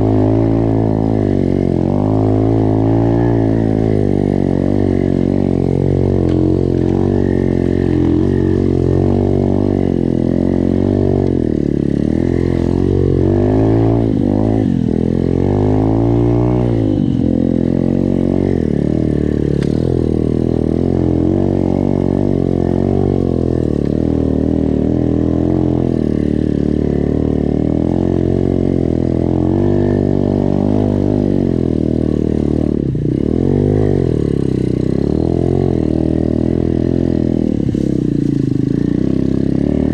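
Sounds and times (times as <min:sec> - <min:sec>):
motorbike engine revving: 0:00.0 - 0:39.9.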